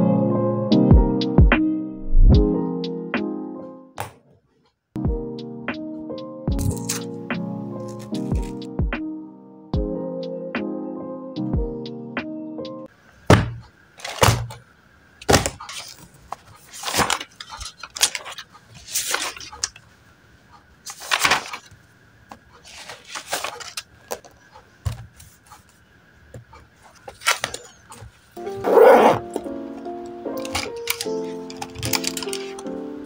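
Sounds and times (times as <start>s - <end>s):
background music: 0.0s - 4.0s, 5.0s - 12.9s, 28.4s - 33.0s
paper pages rustling: 7.8s - 8.6s, 14.0s - 14.6s, 15.2s - 19.9s, 20.8s - 25.8s, 26.5s - 29.5s, 30.4s - 32.7s.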